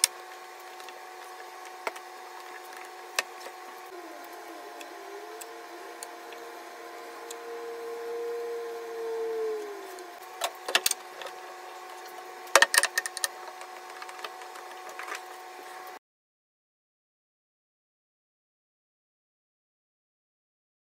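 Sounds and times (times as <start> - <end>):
steady machine hum: 0.0 - 16.0.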